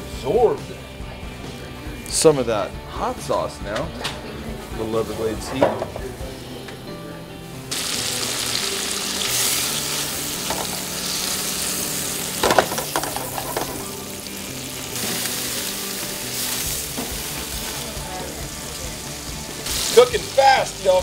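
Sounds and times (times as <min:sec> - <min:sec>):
fish sizzling in butter: 0:07.7 - 0:21.0.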